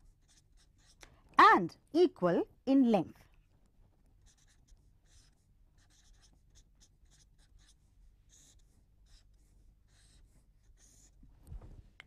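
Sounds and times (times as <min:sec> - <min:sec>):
pen scratching while writing: 0:00.0 - 0:01.0, 0:04.2 - 0:11.2.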